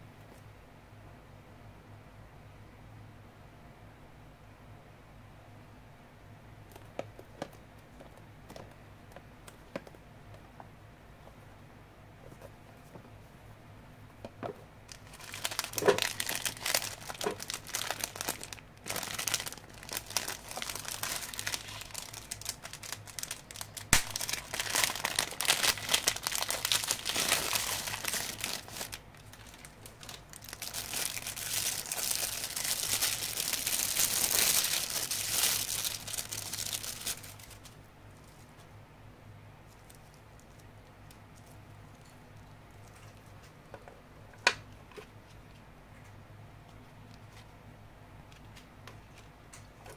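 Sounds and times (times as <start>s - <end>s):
packaging crinkling: 14.9s - 38.4s.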